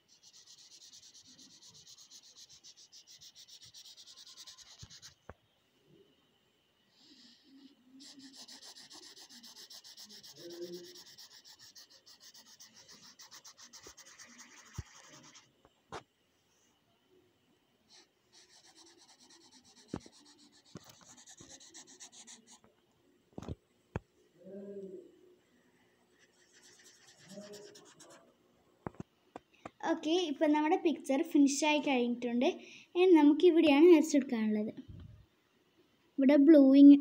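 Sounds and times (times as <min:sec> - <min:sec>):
felt-tip marker scribbling on paper: 0:00.0 - 0:05.2, 0:07.1 - 0:15.5, 0:17.9 - 0:22.6, 0:26.2 - 0:28.2.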